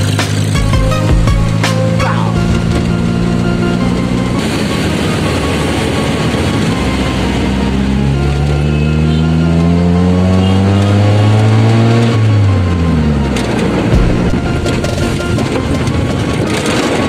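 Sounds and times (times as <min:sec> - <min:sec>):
tyres on wet road: 0:00.0 - 0:17.0
car engine from inside cabin: 0:01.3 - 0:16.1.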